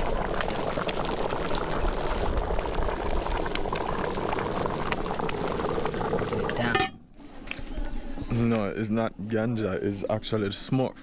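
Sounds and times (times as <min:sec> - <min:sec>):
stew bubbling in a pot: 0:00.0 - 0:06.8.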